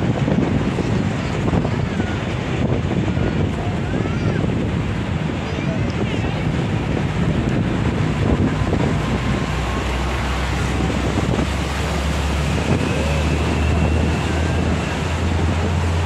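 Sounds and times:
bus rumbling: 0.0 - 16.0
traffic: 0.0 - 16.0
wind rushing over microphone: 0.0 - 16.0.

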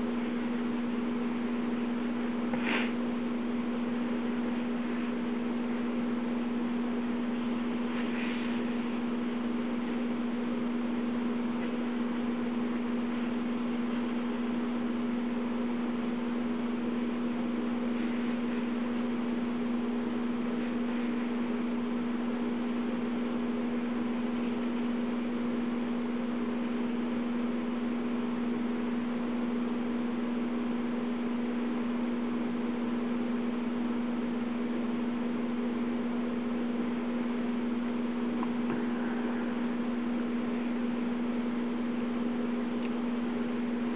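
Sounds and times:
constant hiss: 0.0 - 27.0
electrical hum: 0.0 - 43.9.

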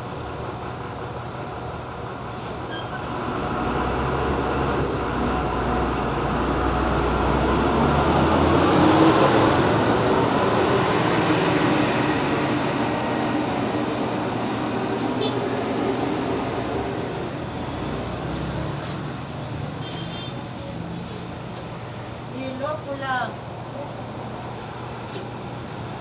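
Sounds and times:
street traffic rumble: 0.0 - 26.0
vehicle passing: 3.2 - 19.8.

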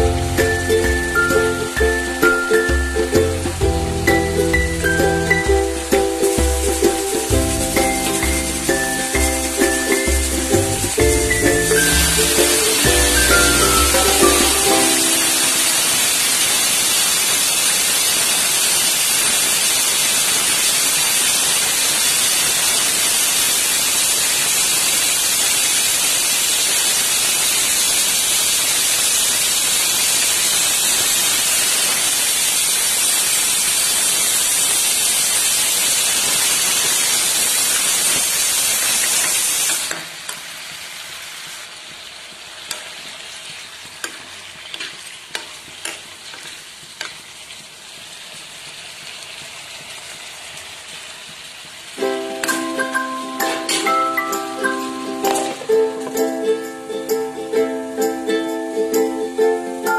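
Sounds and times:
food sizzling in a frying pan: 0.0 - 59.9.

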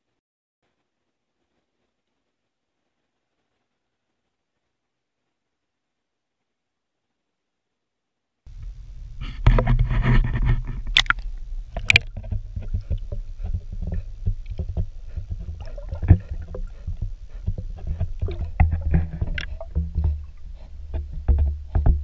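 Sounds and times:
manatee crunching plants: 8.5 - 22.0
muffled underwater rumble: 8.5 - 22.0
underwater clicks and crackles: 8.5 - 22.0
camera splashing into water: 10.8 - 12.1.

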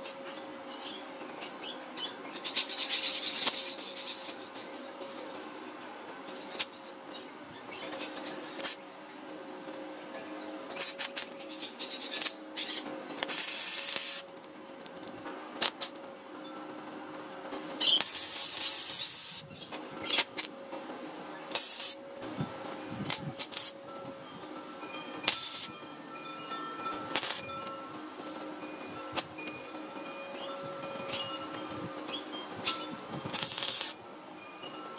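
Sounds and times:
steady hum: 0.0 - 34.9
welder arc crackling and hissing: 0.0 - 34.9.

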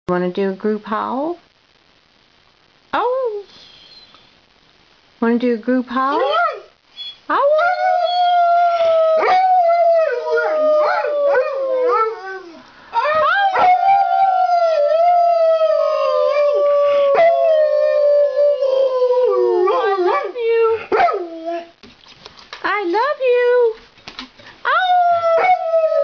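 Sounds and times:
dog howling: 6.2 - 21.7, 24.7 - 26.0.

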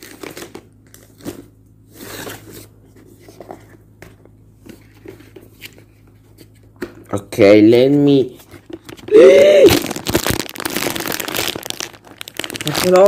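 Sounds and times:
rustling scrape of packaging: 9.8 - 13.0.

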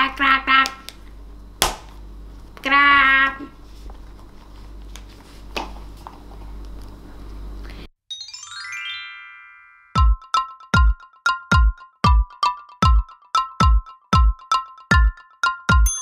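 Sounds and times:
descending chime notes: 8.1 - 10.1
electronic jingle with bass beats: 10.0 - 13.0.

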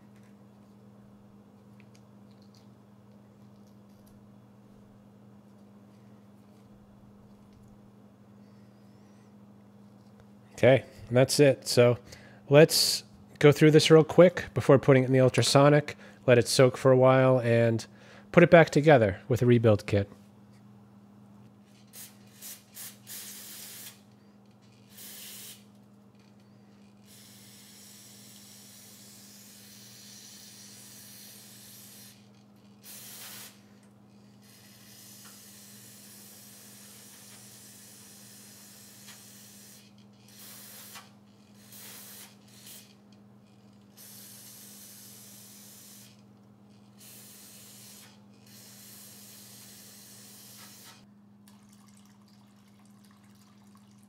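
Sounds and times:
aerosol spray hissing: 22.0 - 24.0, 24.9 - 25.6, 32.9 - 33.6, 40.3 - 41.0, 41.6 - 42.9, 44.0 - 46.1, 47.0 - 51.0.

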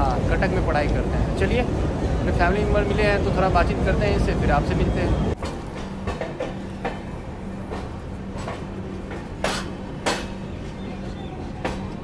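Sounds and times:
train wheels clacking over rail joints: 5.4 - 10.8, 11.4 - 12.0.

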